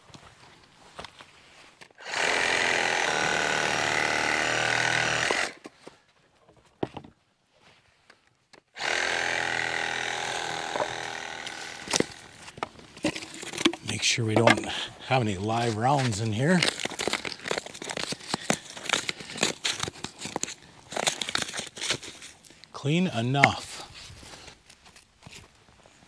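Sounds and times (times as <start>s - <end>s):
reciprocating saw cutting log: 2.0s - 5.7s, 8.8s - 22.4s.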